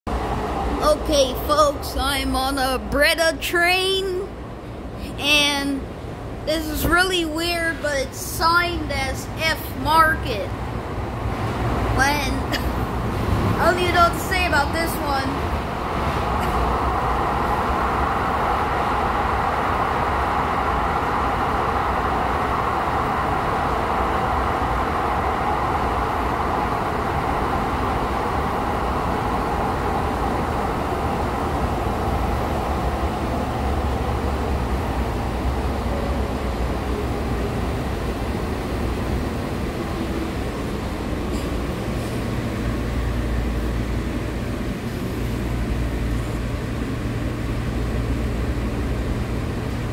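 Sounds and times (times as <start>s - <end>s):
rail rumble: 0.1s - 49.9s.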